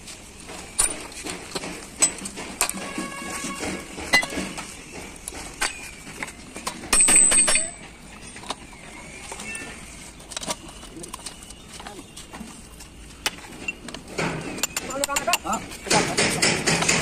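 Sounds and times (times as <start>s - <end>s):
metal parts clinking and knocking: 0.8s - 4.6s, 5.6s - 11.6s, 13.3s - 17.0s
metal clattering with high ring: 2.0s - 4.6s, 6.7s - 8.6s.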